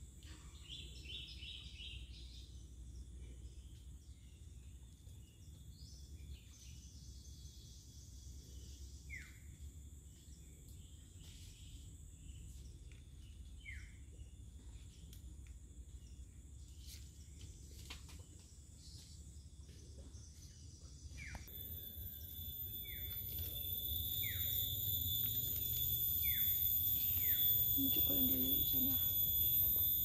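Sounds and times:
high-pitched insect drone: 21.5s - 30.0s.

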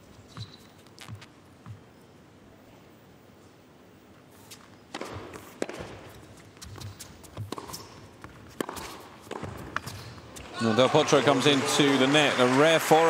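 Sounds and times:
racket striking tennis ball: 4.9s - 10.5s
crowd noise: 10.4s - 13.0s.

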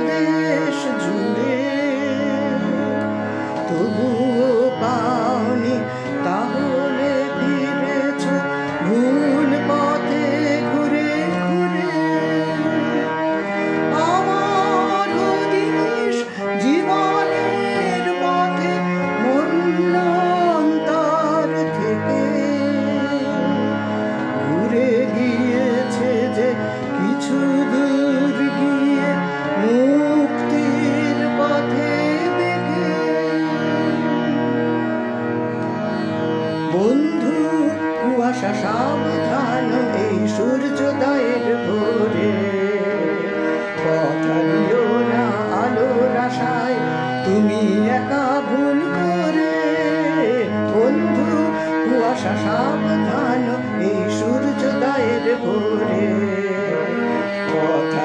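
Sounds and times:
instrumental backing track music: 0.0s - 58.0s.

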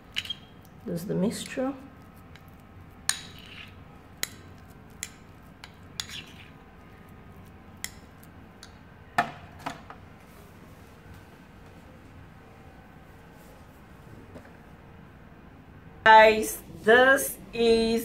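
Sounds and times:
teaspoon stirring thick paste: 0.0s - 8.9s.

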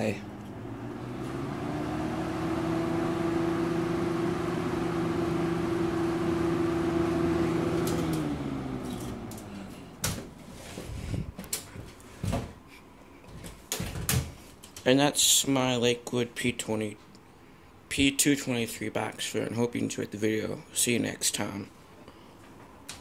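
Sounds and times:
box fan motor humming: 0.0s - 11.3s.

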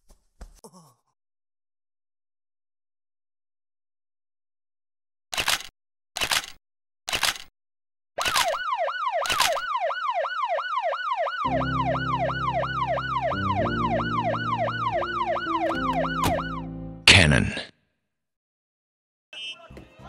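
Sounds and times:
police siren yelping: 8.3s - 16.8s
low background music chords: 11.5s - 17.1s.

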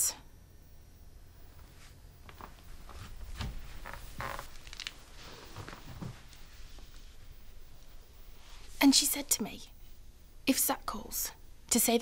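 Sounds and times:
faint rustles and soft knocks: 1.4s - 9.2s.

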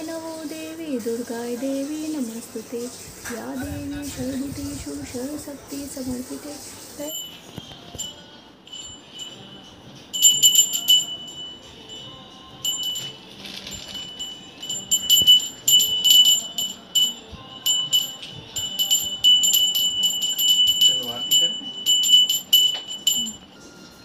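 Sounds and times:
hand bell ringing: 7.0s - 23.8s.

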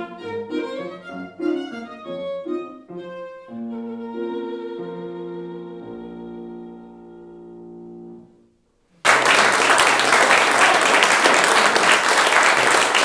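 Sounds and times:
violin and piano chord: 0.0s - 8.5s
audience applause: 9.0s - 13.0s.

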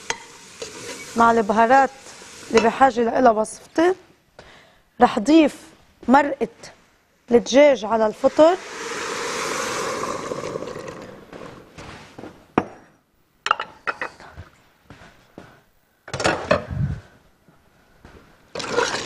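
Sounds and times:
liquid pouring into a pot: 8.4s - 11.2s, 18.6s - 19.0s.

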